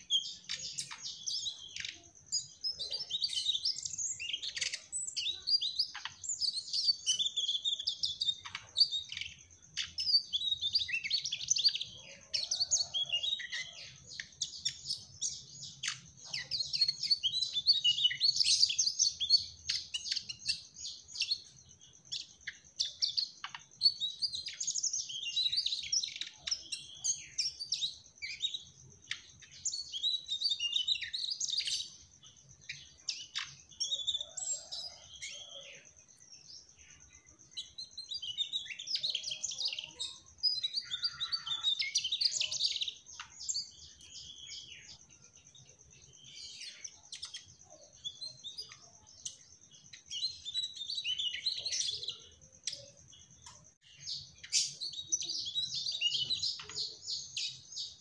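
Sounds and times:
bird twittering song: 0.0 - 58.0.

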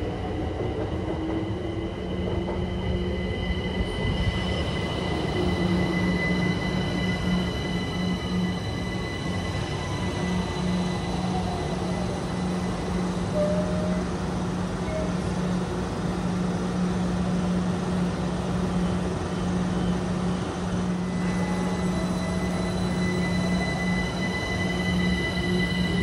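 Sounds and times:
passenger train rumbling: 0.0 - 26.0
thin high whines: 1.1 - 14.1, 21.0 - 26.0.

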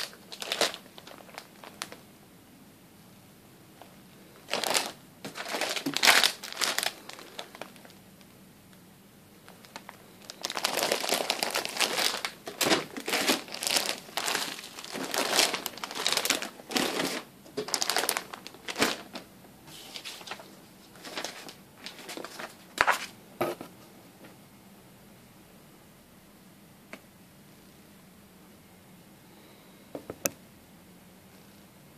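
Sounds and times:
plastic bags crinkling: 0.0 - 2.0, 3.8 - 8.3, 9.4 - 19.3, 19.9 - 23.1.

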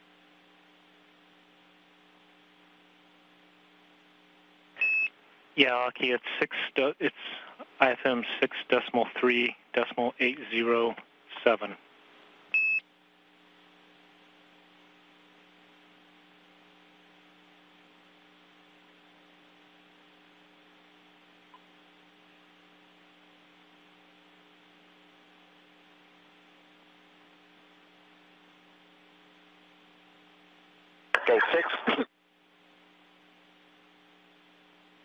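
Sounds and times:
radio channel hum and hiss: 0.0 - 35.0.

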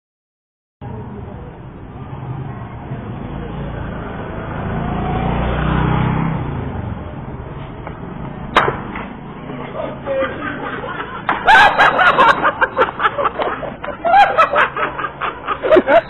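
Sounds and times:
sharp crack: 8.5 - 9.2
voices shouting and laughing: 9.4 - 16.0.

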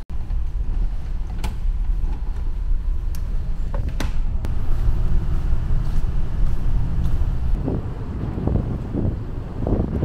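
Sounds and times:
wind buffeting microphone: 4.4 - 10.0.

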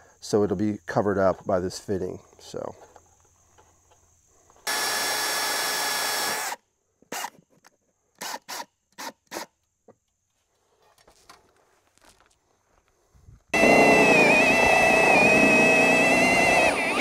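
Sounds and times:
cordless drill drilling into wall: 4.7 - 6.6, 13.6 - 17.0.

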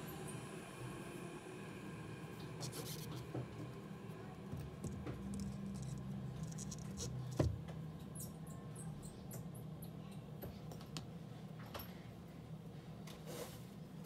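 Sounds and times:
low steady hum: 0.0 - 13.1
small tools clicking and scratching: 4.9 - 7.5.

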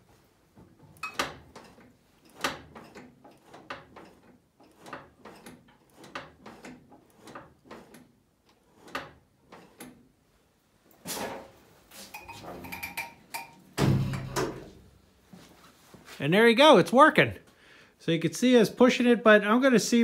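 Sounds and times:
throttle linkage clicks and knocks: 0.6 - 10.0.

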